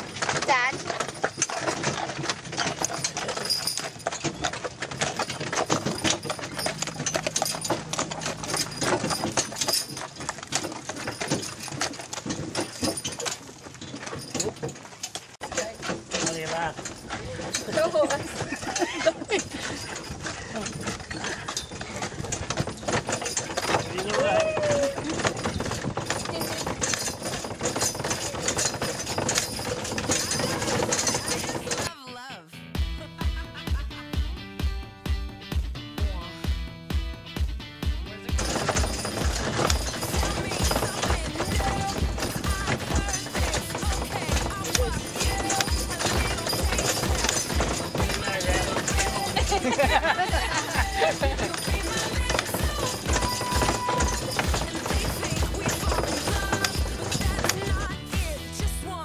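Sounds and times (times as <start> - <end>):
clatter of knocks: 0.0 - 31.9, 38.4 - 58.4
hooves clip-clopping on gravel: 0.0 - 31.9, 38.3 - 59.0.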